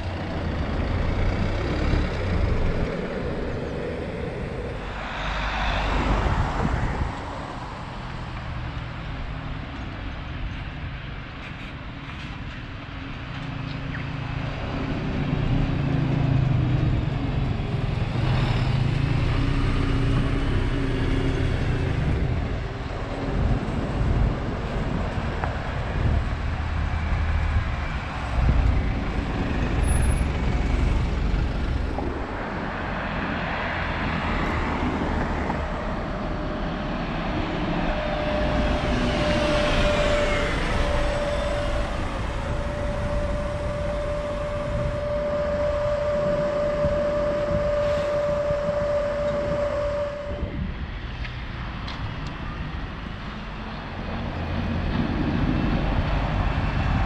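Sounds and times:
steady high whine: 0.0s - 11.5s, 19.7s - 51.2s
bus engine rumbling past: 0.0s - 57.0s
cars passing: 0.0s - 57.0s.

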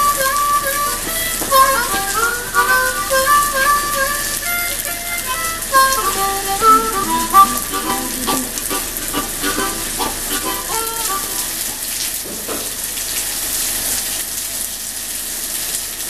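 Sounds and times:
melody of short notes: 0.0s - 11.7s
heavy rain on pavement: 0.0s - 16.0s.

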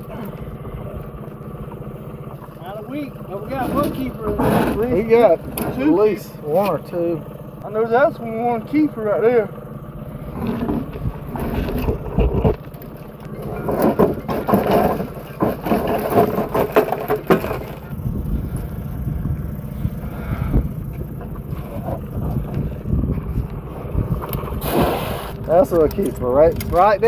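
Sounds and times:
steady low rumble: 0.0s - 27.0s
wire crab pot rattling: 25.4s - 27.0s.

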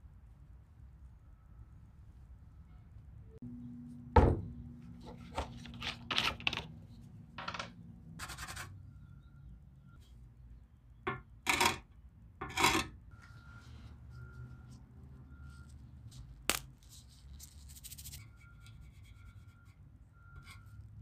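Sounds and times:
metal parts scraping and rubbing: 5.0s - 6.8s, 12.4s - 12.9s.

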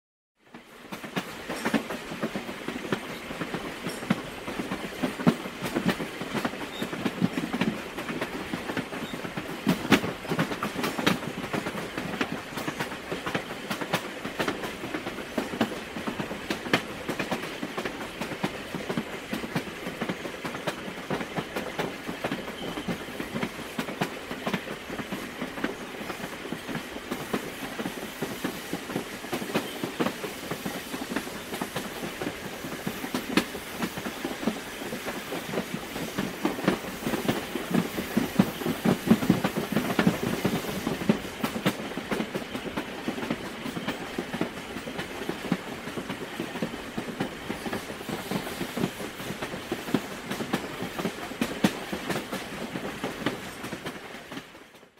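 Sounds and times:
steam train running: 0.5s - 54.9s.

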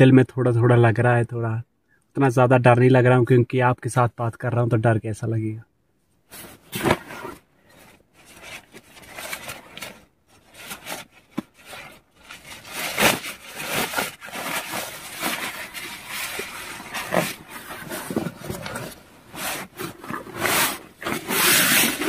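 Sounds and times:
fabric rustling and crinkling: 6.3s - 22.0s.

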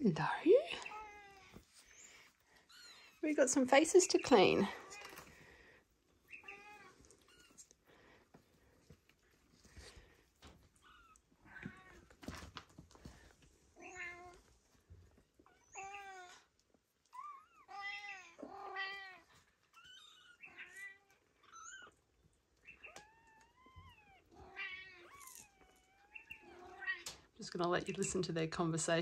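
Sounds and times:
faint rustling: 0.6s - 15.8s
kittens meowing: 6.3s - 7.7s, 17.1s - 22.0s, 22.6s - 27.2s.

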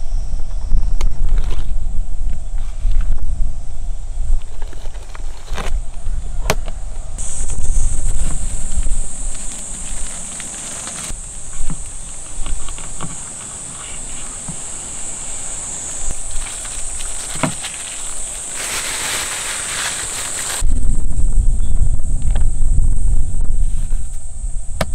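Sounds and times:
high-pitched insect chorus: 0.0s - 24.8s
plastic crinkle: 16.1s - 20.6s.

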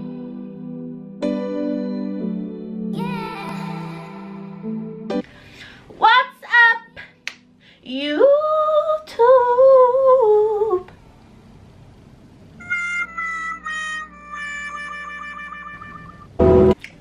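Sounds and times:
woman singing: 3.0s - 4.7s, 6.0s - 7.2s, 7.8s - 10.9s.

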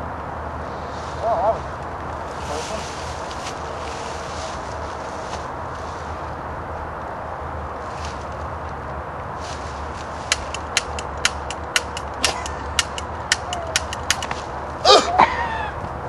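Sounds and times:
toy cap guns popping: 10.3s - 14.4s.

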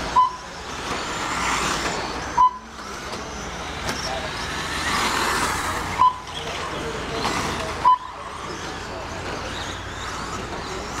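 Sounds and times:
radio-controlled trucks running on dirt: 0.0s - 11.0s
short loud electronic beeps: 0.2s - 0.4s, 2.4s - 2.7s, 6.0s - 6.3s.

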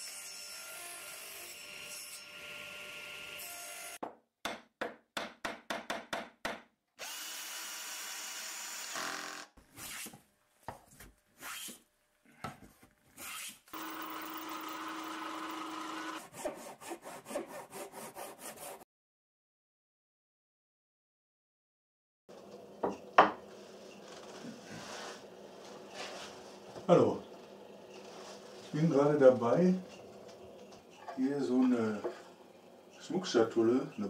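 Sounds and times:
power tool running: 7.0s - 9.5s, 13.7s - 16.2s
saw strokes in wood: 13.2s - 18.8s.

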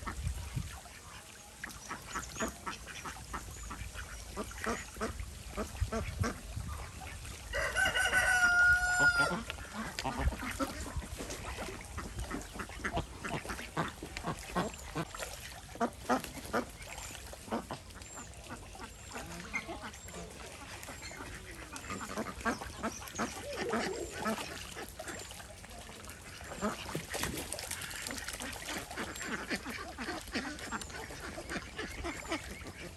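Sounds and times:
ducks quacking: 0.0s - 32.9s
ducks splashing in water: 0.0s - 32.9s
rooster crowing: 7.5s - 9.4s.

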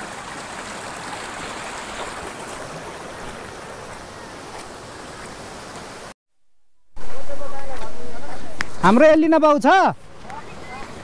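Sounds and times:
running water rushing: 0.0s - 6.2s, 8.5s - 11.0s.

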